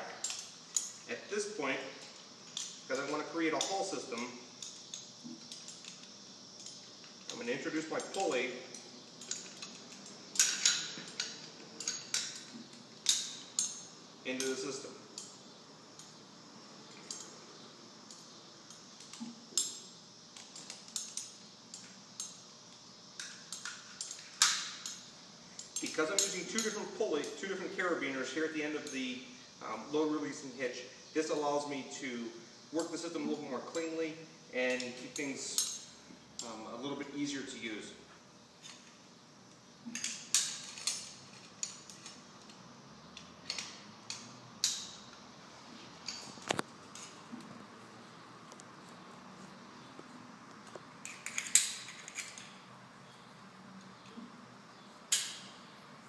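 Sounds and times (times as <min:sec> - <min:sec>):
carabiners clinking and clicking: 0:00.0 - 0:16.2, 0:16.8 - 0:17.4, 0:18.1 - 0:22.4, 0:23.2 - 0:29.0, 0:32.8 - 0:36.8, 0:39.9 - 0:42.6, 0:43.2 - 0:45.2, 0:51.0 - 0:52.7.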